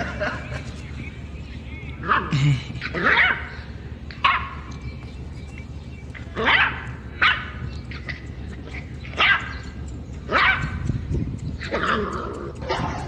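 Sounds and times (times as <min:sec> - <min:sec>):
dog yipping: 0:06.4 - 0:08.0, 0:09.1 - 0:09.6, 0:10.3 - 0:10.7.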